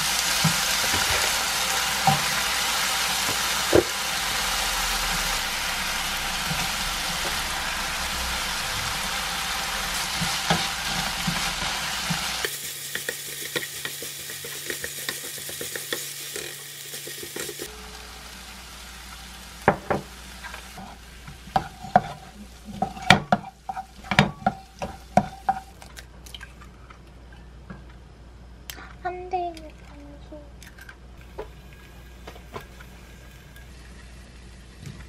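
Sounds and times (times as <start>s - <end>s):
fried rice sizzling in a pan: 0.0s - 25.8s
spatula scraping a pan: 20.4s - 25.8s.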